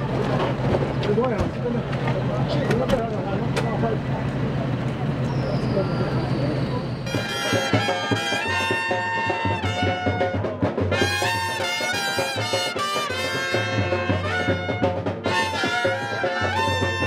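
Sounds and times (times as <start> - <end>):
brass band with trumpets: 7.0 - 17.0.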